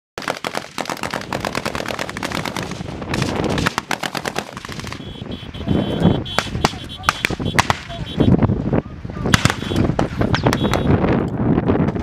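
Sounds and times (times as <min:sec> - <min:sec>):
heavy automatic gunfire: 0:00.2 - 0:08.2, 0:09.3 - 0:10.9.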